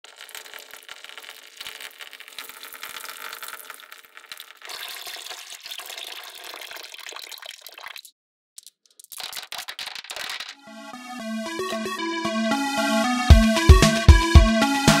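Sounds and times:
water pouring: 0.0 - 10.6.

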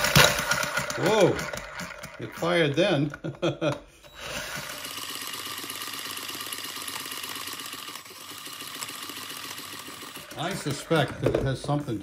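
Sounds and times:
small model engine running: 0.0 - 2.9, 4.1 - 12.0.

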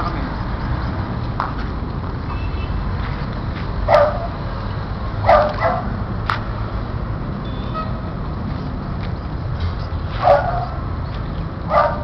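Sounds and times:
puppy barking: 3.9 - 4.4, 5.2 - 6.0, 10.2 - 10.8, 11.7 - 12.0.

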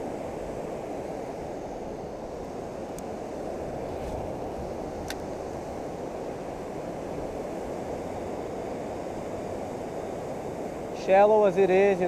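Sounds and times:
faint click: 5.0 - 5.2.

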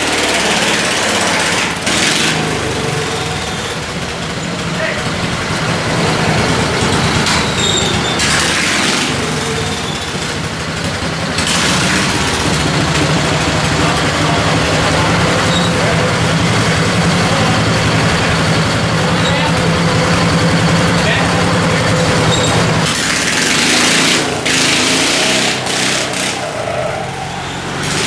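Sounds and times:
garden tractor engines under load: 0.0 - 28.0.

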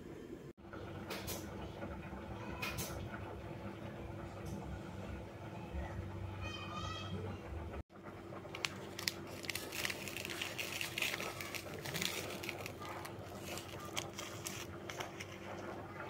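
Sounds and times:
seasoning sachet crinkling: 8.5 - 15.7.

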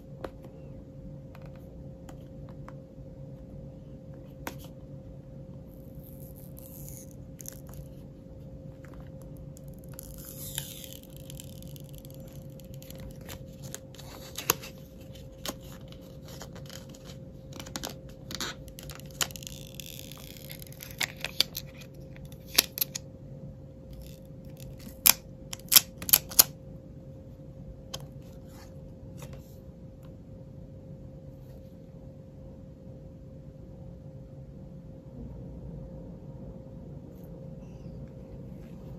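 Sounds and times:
faint steady hum: 0.0 - 38.9
plastic film peeling: 5.7 - 8.0, 9.1 - 23.0, 23.9 - 26.5.

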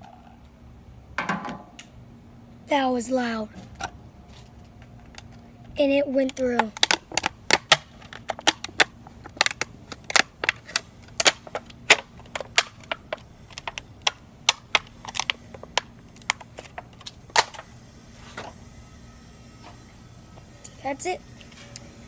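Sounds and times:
plastic cup crackling: 4.3 - 17.7.

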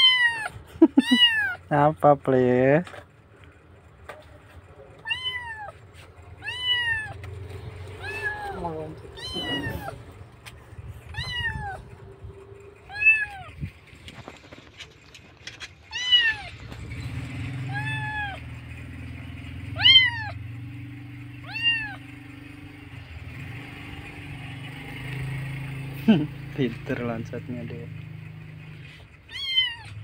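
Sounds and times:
kitten meowing loudly: 0.0 - 1.6, 5.0 - 5.8, 6.4 - 7.2, 8.0 - 10.0, 11.1 - 11.9, 12.9 - 13.5, 15.9 - 16.6, 17.6 - 18.4, 19.8 - 20.4, 21.4 - 22.0, 29.3 - 30.0.

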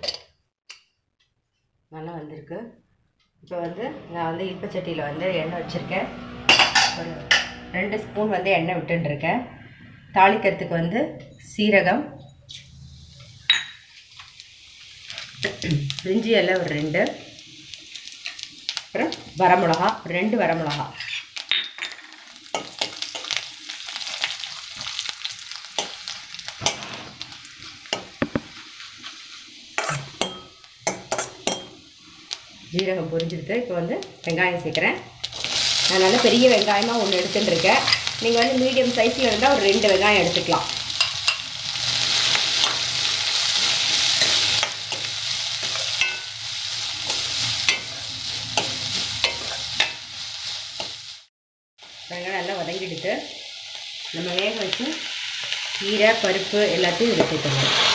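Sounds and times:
spices sizzling in hot oil: 12.4 - 57.9.

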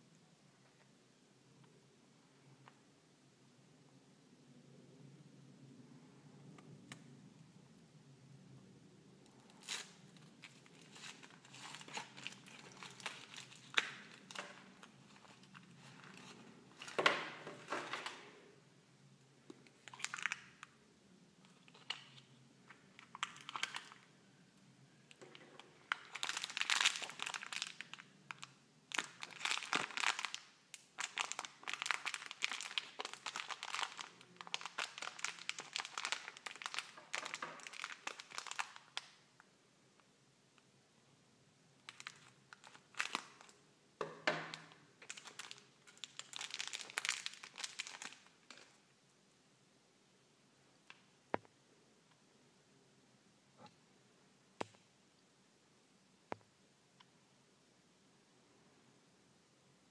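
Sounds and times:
plastic bag crinkling: 9.3 - 18.4, 19.7 - 20.7, 21.6 - 24.1, 25.1 - 39.0, 41.8 - 43.6, 44.4 - 48.8
plastic handling: 9.3 - 18.4
foil wrapper crinkling and tearing: 9.4 - 18.2, 19.8 - 20.7, 23.0 - 24.1, 25.8 - 39.0, 41.8 - 43.5, 44.5 - 48.7.

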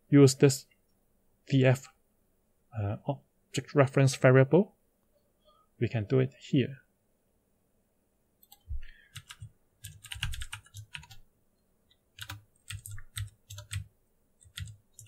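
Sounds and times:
typing on keyboard: 8.4 - 11.2, 12.2 - 15.0.

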